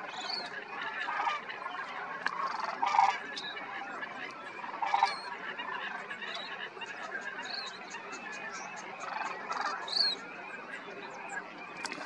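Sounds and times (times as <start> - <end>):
chorus of bird calls: 0.0 - 12.0.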